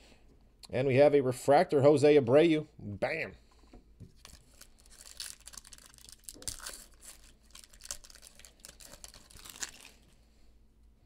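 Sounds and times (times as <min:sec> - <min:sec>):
foil wrapper crinkling: 0:04.1 - 0:10.1.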